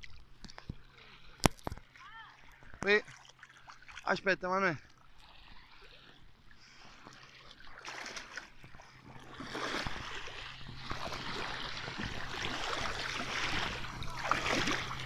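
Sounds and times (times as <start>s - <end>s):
seawater sloshing and splashing: 0.0s - 15.0s.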